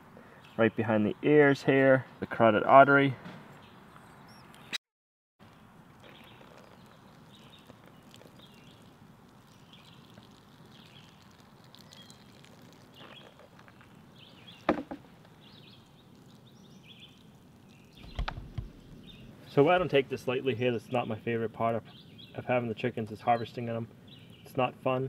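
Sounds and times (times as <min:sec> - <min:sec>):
faint bird chirps: 0:06.0 - 0:14.7
sharp knock: 0:14.7 - 0:15.0.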